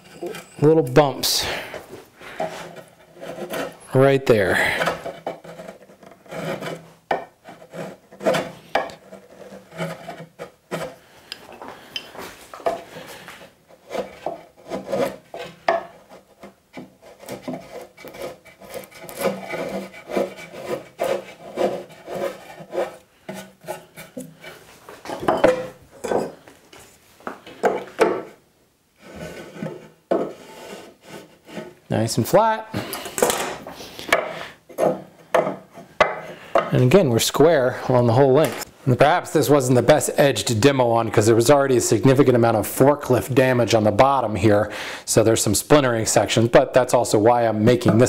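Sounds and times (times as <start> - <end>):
chisel scraping wood: 0.0 - 11.2, 12.6 - 24.7, 29.0 - 31.8, 34.0 - 38.7.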